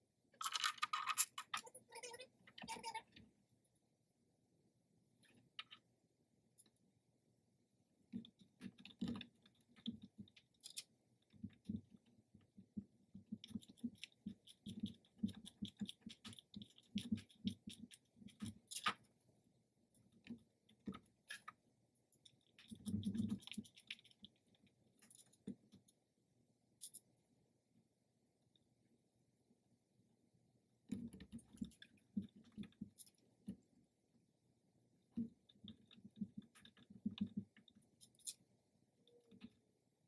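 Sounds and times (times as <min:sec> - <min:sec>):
small clicks and taps: 0:35.1 - 0:38.5.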